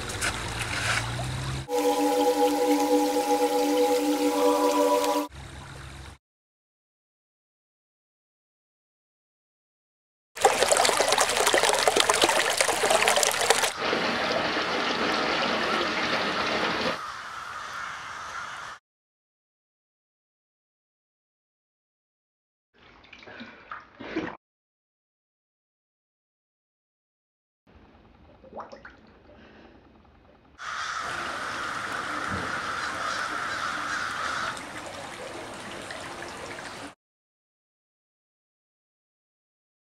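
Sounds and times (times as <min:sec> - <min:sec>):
faucet running into bathtub: 0:10.4 - 0:13.8
water splashing over rocks: 0:10.4 - 0:17.0, 0:33.8 - 0:37.0
flock of crows cawing: 0:17.0 - 0:18.8, 0:30.6 - 0:35.0.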